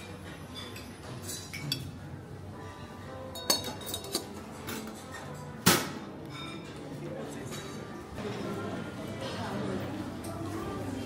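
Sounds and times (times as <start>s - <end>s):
dishes and cutlery clinking: 0.0s - 8.6s.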